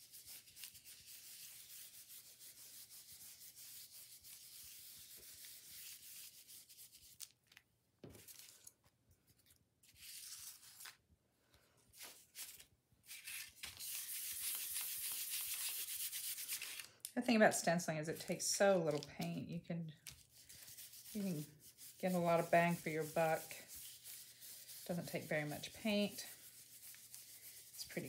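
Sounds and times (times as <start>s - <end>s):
brush scrubbing in plastic bowl: 17.4s - 28.0s
stencil brush dabbing paint: 17.4s - 28.0s.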